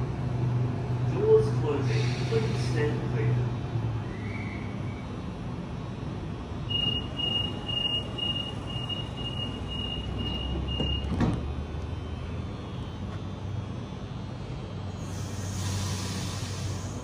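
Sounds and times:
train low hum: 0.0 - 17.0
high door-warning beeps: 6.7 - 11.3
sliding doors shutting with a thump: 10.3 - 11.6.

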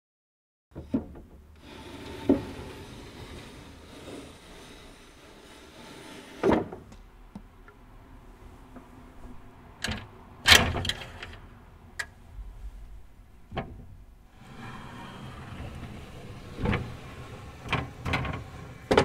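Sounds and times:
wooden window panels sliding: 0.8 - 7.0, 12.6 - 19.0.

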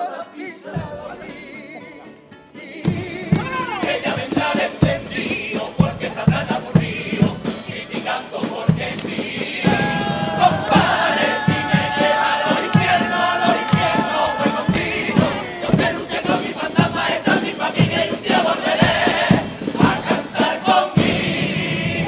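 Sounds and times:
guitar: 0.0 - 6.9
male choir singing in harmony: 0.0 - 22.0
drum beats: 0.8 - 1.5, 2.6 - 22.0.

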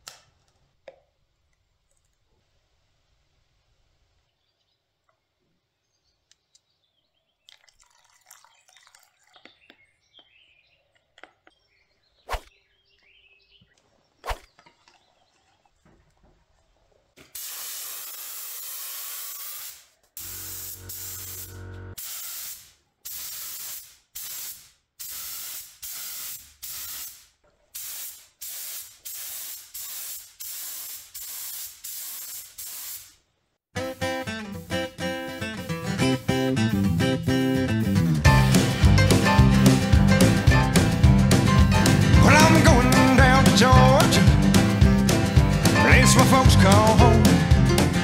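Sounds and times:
air spray gun hissing: 17.2 - 33.2.

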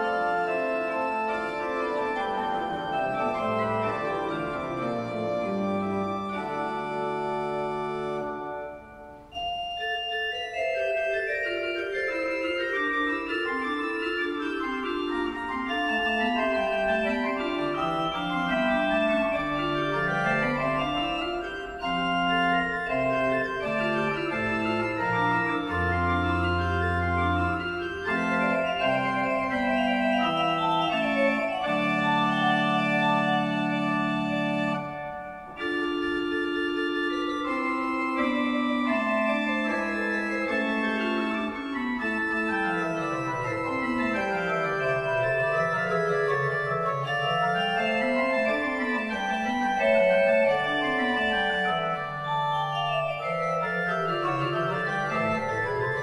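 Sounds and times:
pipe organ playing: 0.0 - 56.0.

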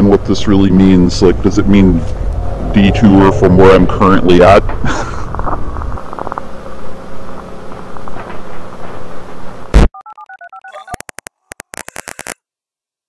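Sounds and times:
faint low hum: 0.0 - 9.6
rumbling background noise: 0.0 - 9.8
touch-tone dialing beeps: 10.0 - 11.6
sharp digital clicks: 10.7 - 12.4
loud crackle: 10.9 - 12.4.

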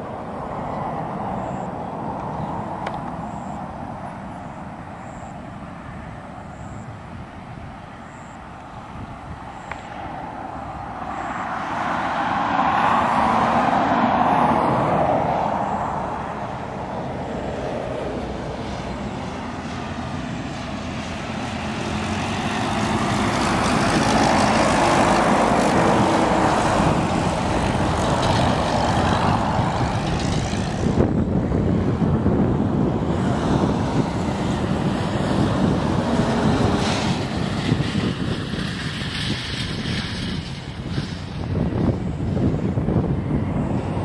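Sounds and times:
propeller plane droning overhead: 0.0 - 44.0.

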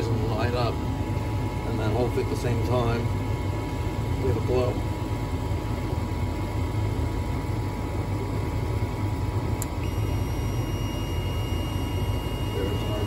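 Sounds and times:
furnace humming: 0.0 - 13.0
click: 9.6 - 9.8
voltage tester high beep: 9.7 - 13.0.

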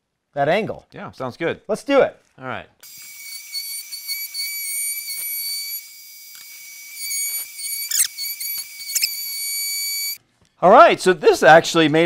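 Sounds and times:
router whining while cutting wood: 2.8 - 10.2.

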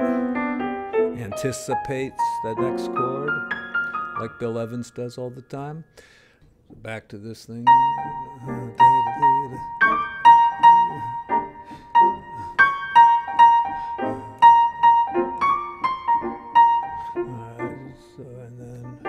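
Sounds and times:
jazz piano solo: 0.0 - 4.6.

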